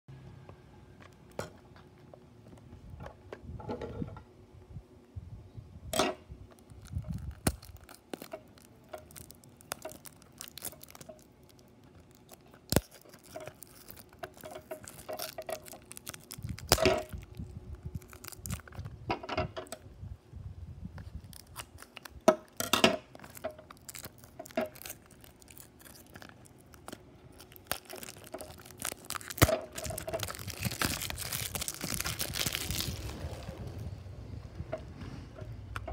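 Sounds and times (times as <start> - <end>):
cardboard seal tearing: 6.6 - 18.9, 21.1 - 33.6.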